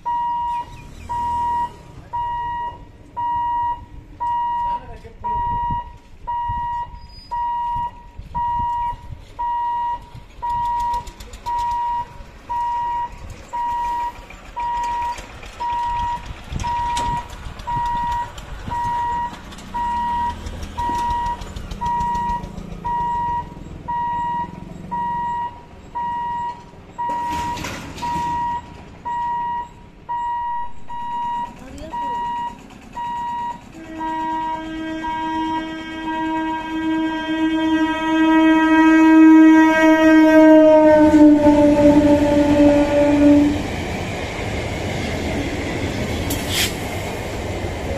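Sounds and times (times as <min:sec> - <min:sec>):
vehicles rumbling past: 0:00.0 - 0:47.9
warning buzzer beeping: 0:21.9 - 0:35.3.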